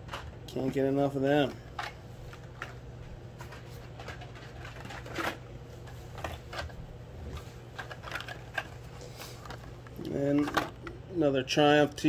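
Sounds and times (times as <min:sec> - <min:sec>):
faint low hum: 0:00.0 - 0:12.0
plastic packaging clicks and crinkles: 0:03.4 - 0:10.9.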